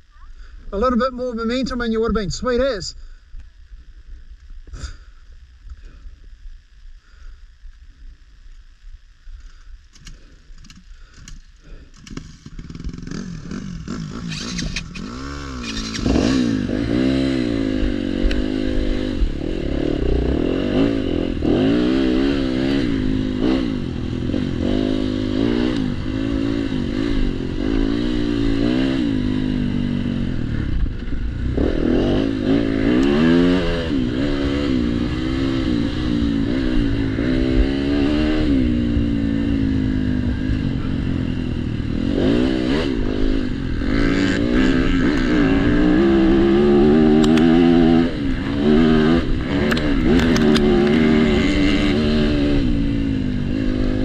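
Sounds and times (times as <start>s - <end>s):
dirt bike engine revving: 11.0s - 54.0s.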